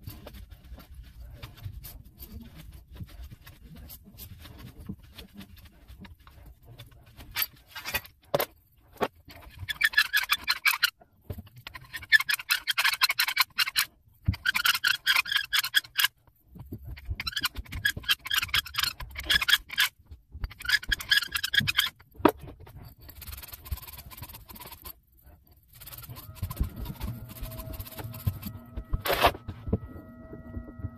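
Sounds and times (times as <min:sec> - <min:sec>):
scrubbing copper pipe: 0:11.5 - 0:29.9.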